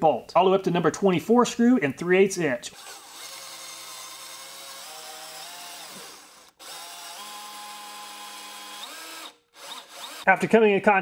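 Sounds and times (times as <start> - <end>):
drill motor whine: 2.8 - 10.3.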